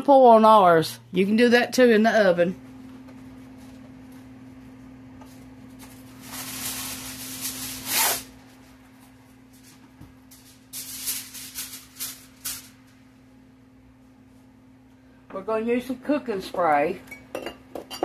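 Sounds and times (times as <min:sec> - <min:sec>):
steady low hum: 0:00.0 - 0:18.0
aluminum foil rustling: 0:05.2 - 0:13.0
foil crinkling: 0:05.7 - 0:08.7, 0:09.6 - 0:12.8
foil ripping: 0:05.8 - 0:08.5, 0:10.4 - 0:12.8.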